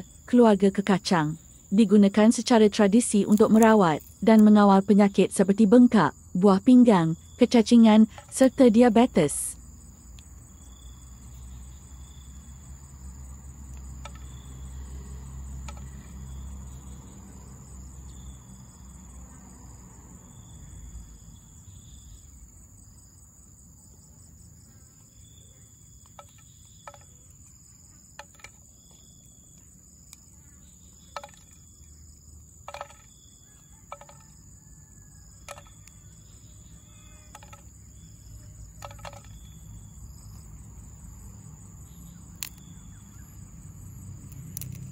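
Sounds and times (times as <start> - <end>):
high insect drone with chirps: 0.0 - 44.9
pods snapping: 3.2 - 4.5, 42.3 - 42.8, 44.2 - 44.9.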